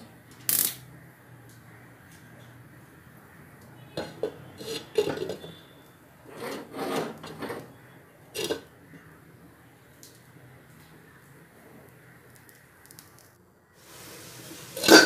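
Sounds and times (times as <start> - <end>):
utensil scraping a pan: 4.0 - 5.7, 6.3 - 7.8, 8.4 - 8.7, 14.8 - 15.0.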